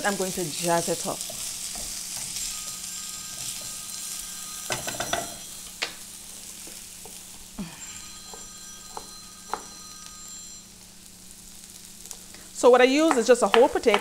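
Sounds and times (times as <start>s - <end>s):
vegetables sizzling in a pan: 0.0s - 14.0s.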